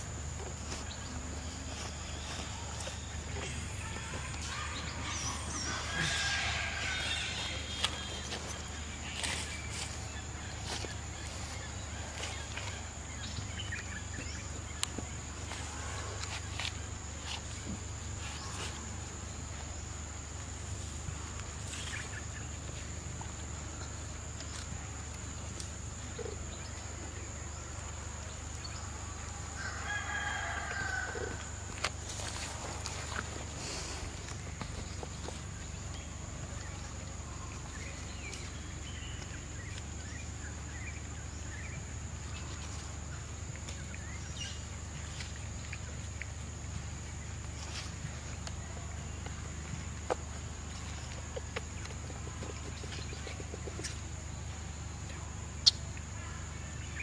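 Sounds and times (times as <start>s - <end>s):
insect trilling: 0.9s - 12.8s.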